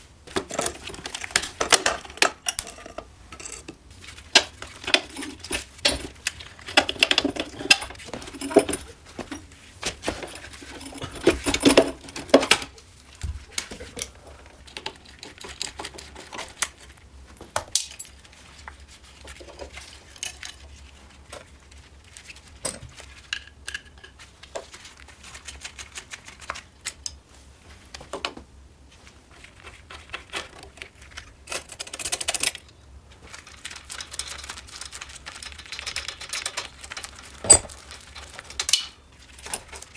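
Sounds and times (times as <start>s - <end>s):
metal parts and tools clinking: 0.4s - 3.7s, 4.4s - 9.5s, 37.4s - 37.8s.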